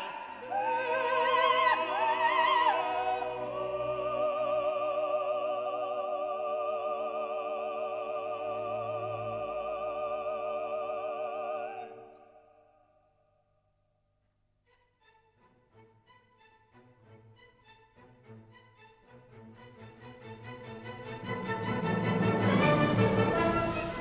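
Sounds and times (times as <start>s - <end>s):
sustained accompaniment: 16.7s - 24.0s.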